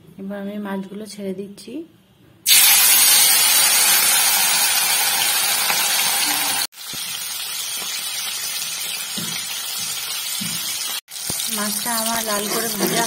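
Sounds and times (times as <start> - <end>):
fish sizzling in hot oil: 2.5 - 13.0.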